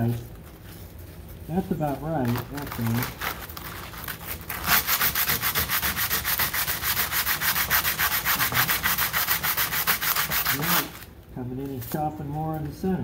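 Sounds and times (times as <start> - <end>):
sanding strokes on sandpaper: 4.6 - 11.0.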